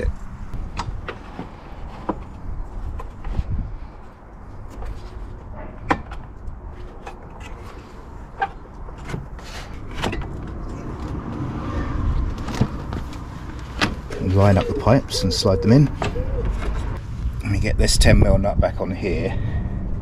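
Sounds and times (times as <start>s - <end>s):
low rumble: 10.0s - 14.3s.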